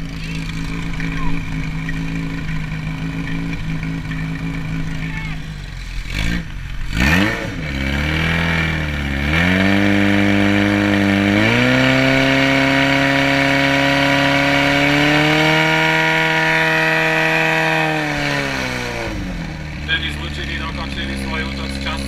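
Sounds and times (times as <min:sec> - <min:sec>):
pump engine revving: 0:00.0 - 0:22.0.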